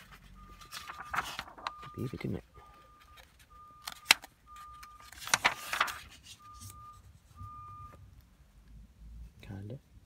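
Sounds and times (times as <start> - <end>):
diary pages turning: 0.0 - 7.4.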